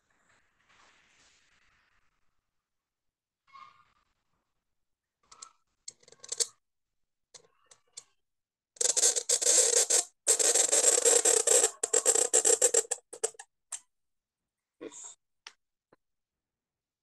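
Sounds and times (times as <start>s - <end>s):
pen nib scratching paper: 8.8s - 13.4s.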